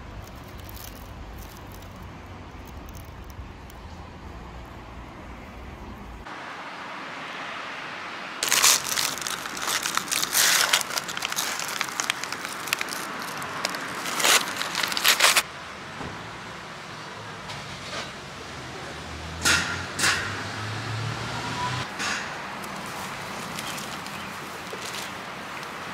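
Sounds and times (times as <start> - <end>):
food wrapper crinkling: 0.2 - 2.0, 8.4 - 15.4.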